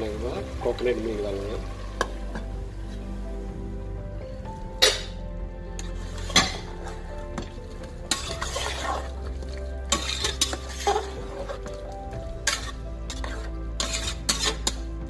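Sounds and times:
food sizzling: 0.0 - 15.0
metal spatula clanking on pot: 4.8 - 5.2, 5.8 - 9.0, 9.9 - 11.8, 12.4 - 14.9
spatula scraping pot: 5.8 - 15.0.

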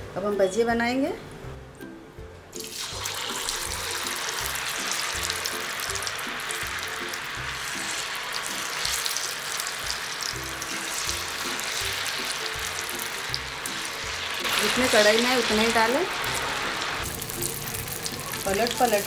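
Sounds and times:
batter sizzling in hot oil: 2.6 - 19.0
background music with a beat: 9.8 - 14.6.

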